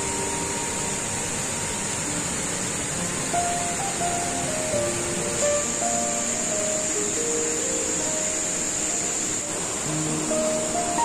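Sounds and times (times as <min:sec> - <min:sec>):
slow melody of held notes: 0:00.0 - 0:11.0.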